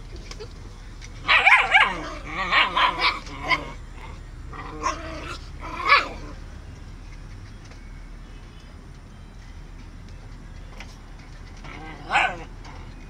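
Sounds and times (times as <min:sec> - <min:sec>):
puppy barking: 0:01.2 - 0:06.4, 0:11.6 - 0:13.0.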